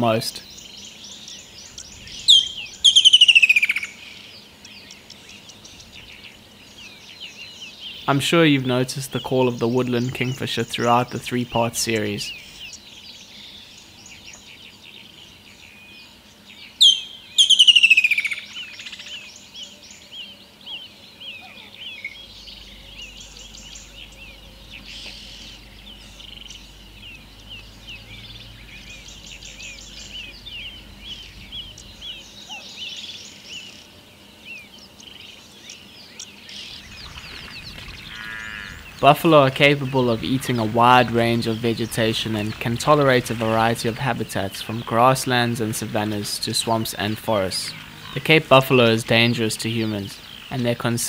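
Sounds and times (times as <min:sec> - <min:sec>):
kingfisher calling: 0:00.0 - 0:04.2, 0:16.8 - 0:19.8, 0:20.7 - 0:33.8, 0:34.9 - 0:51.0
small bird chirps: 0:00.0 - 0:08.3, 0:09.1 - 0:51.0.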